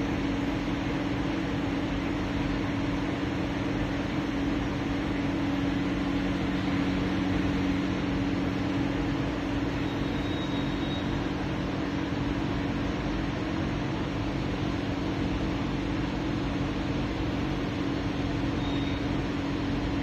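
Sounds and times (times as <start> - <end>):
low mechanical drone: 0.0 - 20.0.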